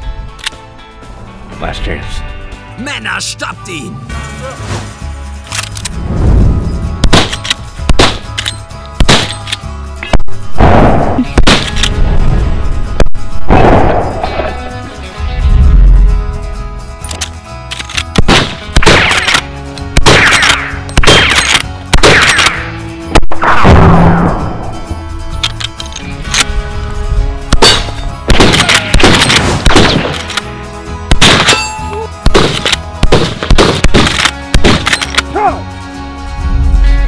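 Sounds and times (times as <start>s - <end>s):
background music sustained tones: 0.0s - 37.0s
gunshots with ringing tail: 18.2s - 19.3s, 20.0s - 24.6s, 27.5s - 30.2s, 31.1s - 34.9s.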